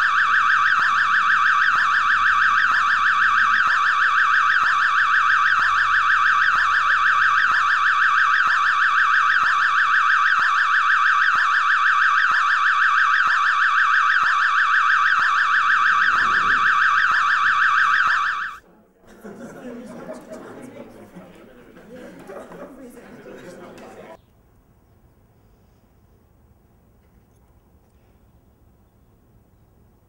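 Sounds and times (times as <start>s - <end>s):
electronic alarm warbling: 0.0s - 18.6s.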